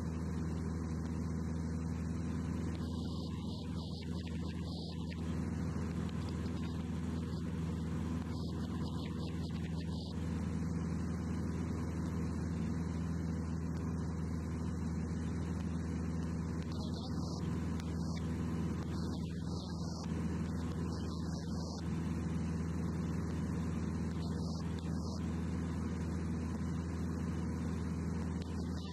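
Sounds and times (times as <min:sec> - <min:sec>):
aircraft engine drone in cabin: 0:00.0 - 0:28.9.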